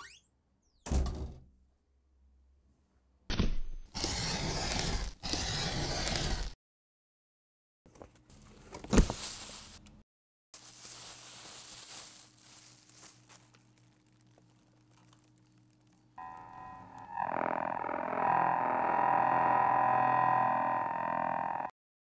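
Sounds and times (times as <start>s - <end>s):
packing peanuts rustling: 10.6s - 16.2s
electronic tone: 16.2s - 21.8s.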